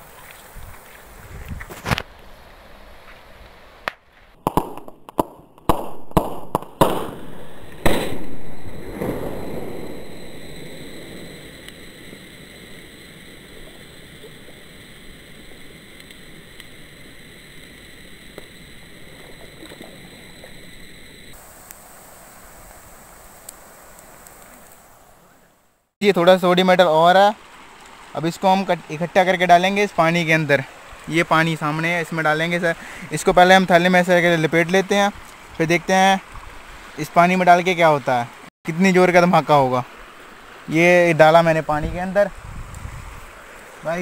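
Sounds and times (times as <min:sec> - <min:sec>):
sodium exploding in water: 0:04.4 - 0:14.8
rushing hiss: 0:07.1 - 0:25.3.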